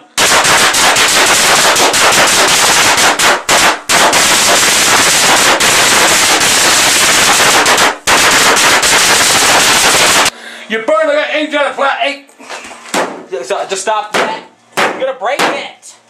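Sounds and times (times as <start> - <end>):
firecrackers crackling: 0.0 - 10.3.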